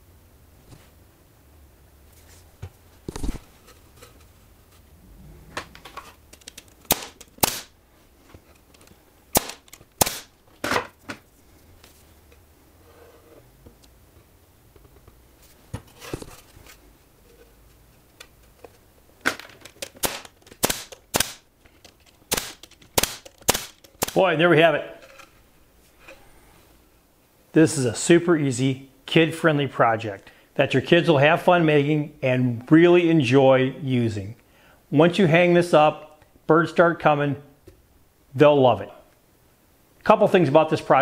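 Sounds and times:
pneumatic nailer firing: 6.8 - 7.8, 9.3 - 10.4, 19.9 - 21.5, 22.3 - 24.2.

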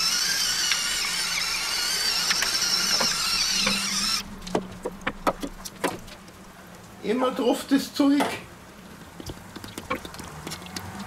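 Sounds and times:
pepper mill motor whining: 0.0 - 4.6.

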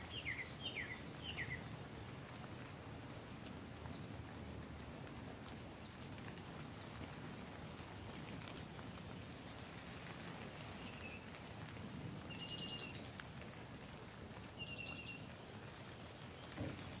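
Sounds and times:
bird singing: 0.0 - 4.1, 12.3 - 13.6, 14.2 - 15.8
rain pattering on tent fabric: 0.0 - 17.0.

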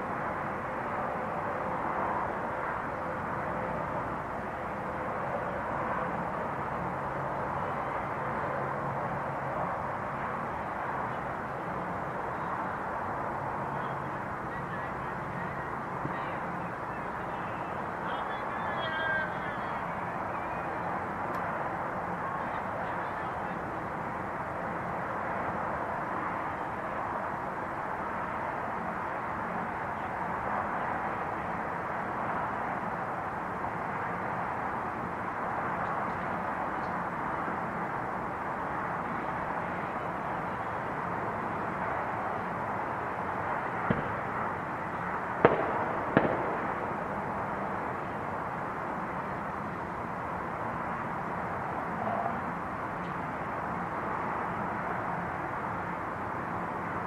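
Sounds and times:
distant fireworks: 43.1 - 50.2
sharp firework bangs: 43.9 - 44.2, 45.4 - 47.0.

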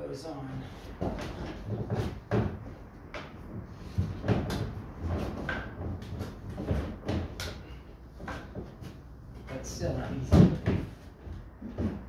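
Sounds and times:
plastic panels knocking and scraping: 1.0 - 9.6, 10.2 - 12.0.

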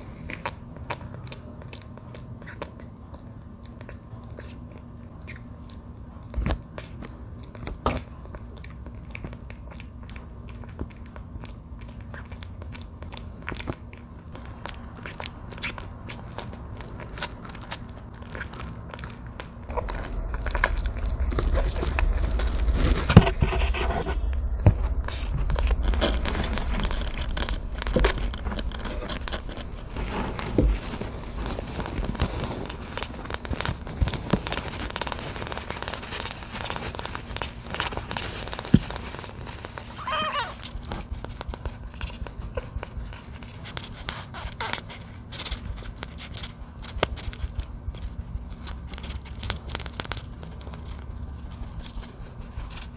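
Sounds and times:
low rumble: 17.6 - 40.9
fingers rubbing fur on towel: 28.4 - 48.2
kitten mewing: 39.8 - 40.8.

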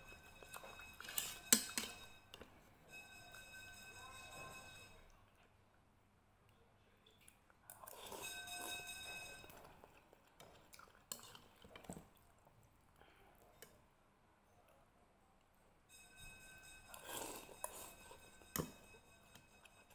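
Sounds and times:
metal spoon clinking on bowl: 0.0 - 5.1, 7.9 - 9.8, 16.0 - 19.9
chewing: 9.4 - 13.7, 16.9 - 18.2.

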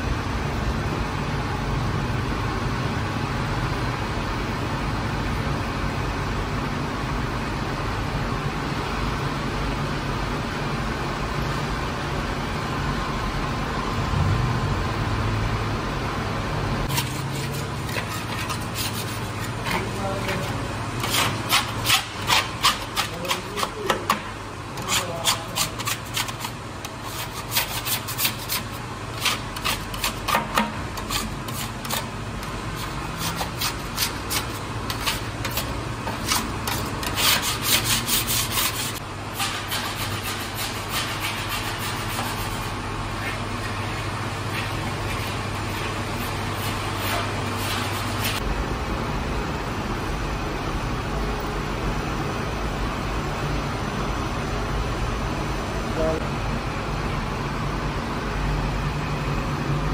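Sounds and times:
dough machine humming: 0.0 - 59.9
metal scraper scraping dough in bowl: 16.9 - 43.9.

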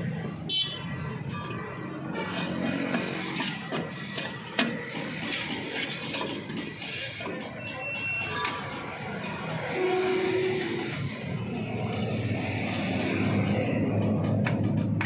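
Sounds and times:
brake drum clicking and scraping: 1.2 - 11.7.

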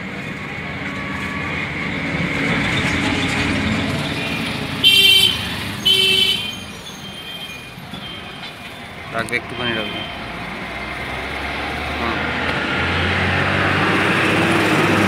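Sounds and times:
street traffic: 0.0 - 15.0
vehicle horn honking: 4.8 - 8.3
vehicle passing: 9.0 - 15.0.

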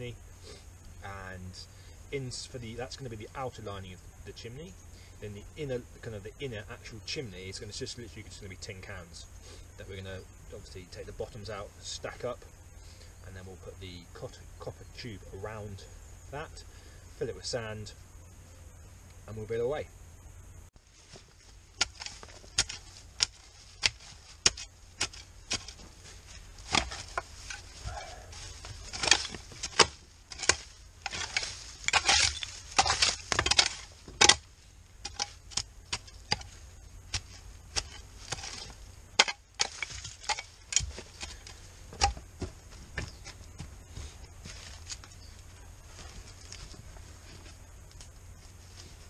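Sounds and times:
spade digging into soil: 21.8 - 27.9, 28.5 - 42.2.

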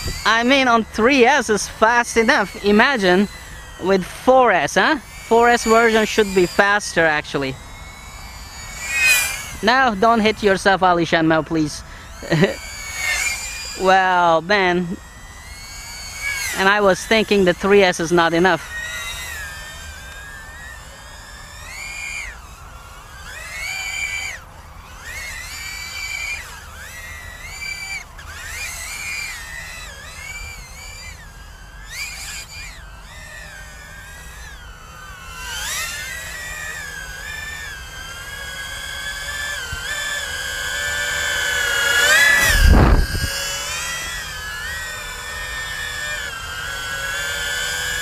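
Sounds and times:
drone motors whining: 0.0 - 48.0
rush of air from passing drone: 42.2 - 43.4.

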